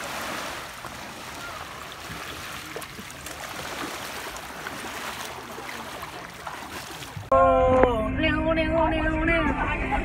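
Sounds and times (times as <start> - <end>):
sea water lapping at shore: 0.0 - 7.3.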